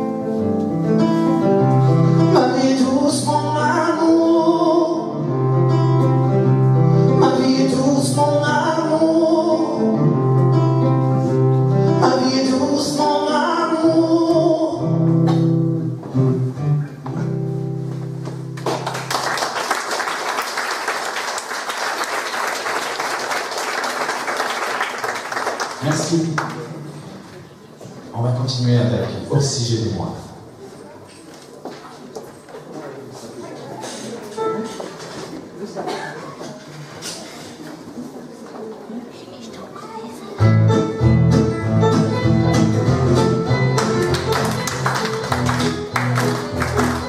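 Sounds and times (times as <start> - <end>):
acoustic guitar: 0.0 - 19.2, 40.3 - 47.0
man singing: 1.9 - 5.5, 6.8 - 10.4, 11.7 - 15.1
audience applauding: 18.6 - 26.7, 43.6 - 47.0
held keyboard notes: 40.4 - 47.0.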